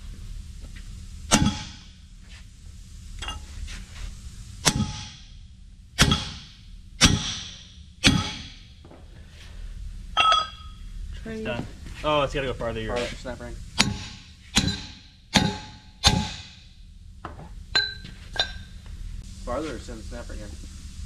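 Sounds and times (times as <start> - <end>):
sledgehammer striking steel plate: 1.3 - 2.0, 4.6 - 5.4, 6.0 - 8.8, 10.2 - 10.8, 13.8 - 16.8.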